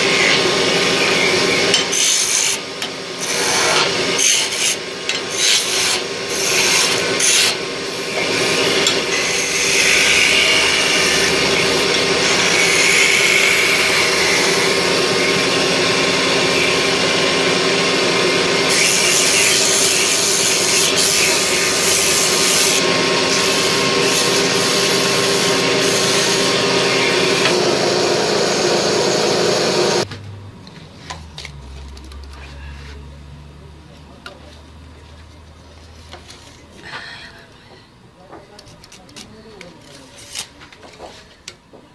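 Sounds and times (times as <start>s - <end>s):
wood lathe tool rasping: 3.2s - 30.1s.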